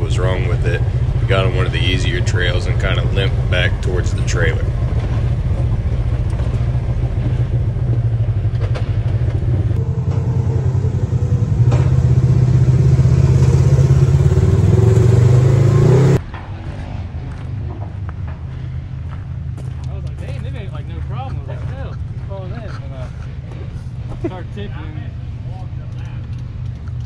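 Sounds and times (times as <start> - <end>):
off-road vehicle engine running: 0.0 - 27.0.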